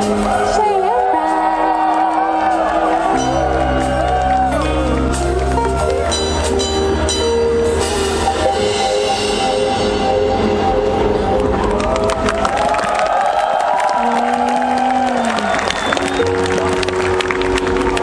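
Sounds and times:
drums: 0.0 - 13.0.

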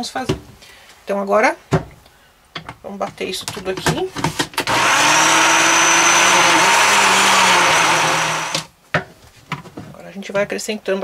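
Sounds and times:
electric blender running: 4.7 - 8.7.

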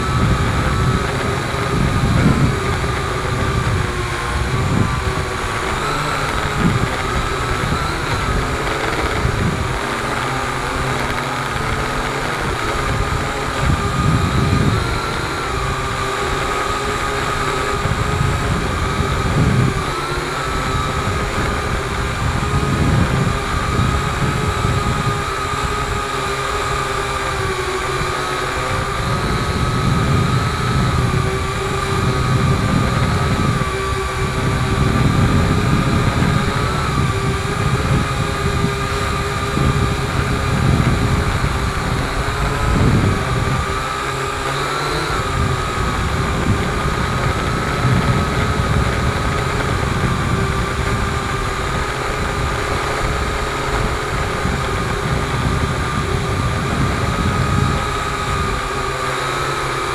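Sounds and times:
drone propellers whirring: 0.0 - 59.9
wind rumble on microphone: 0.0 - 59.9.

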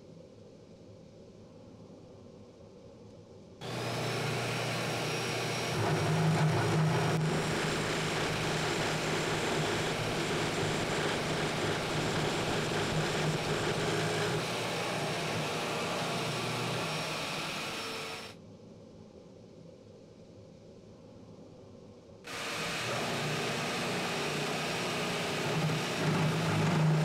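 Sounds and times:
drill press boring into wood: 3.6 - 18.4, 22.3 - 27.0.

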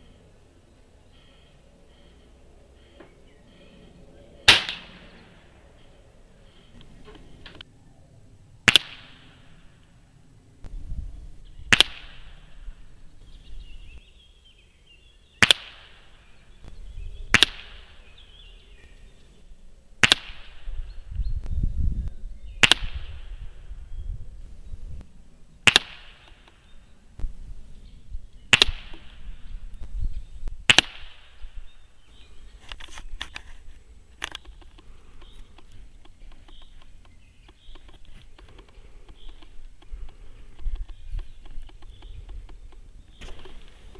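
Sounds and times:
air rifle shots: 4.4 - 5.5, 8.6 - 9.8, 11.7 - 12.8, 15.4 - 16.2, 17.3 - 18.1, 20.0 - 20.8, 22.6 - 23.5, 25.6 - 26.6, 28.5 - 29.4, 30.6 - 31.6
faint clicks: 32.6 - 43.9.

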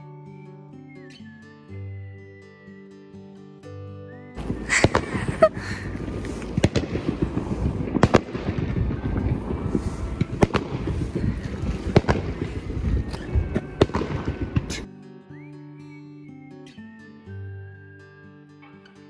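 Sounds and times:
loud firework bangs: 4.4 - 12.9, 13.6 - 14.9
fireworks crackling: 4.4 - 14.9.

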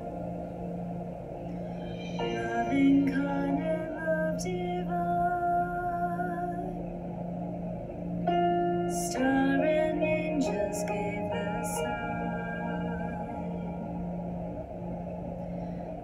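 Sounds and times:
woman singing slow song: 1.8 - 7.2, 8.3 - 14.4.

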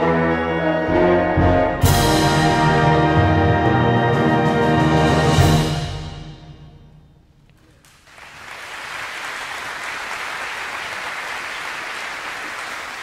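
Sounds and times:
audience applause: 7.8 - 13.0.

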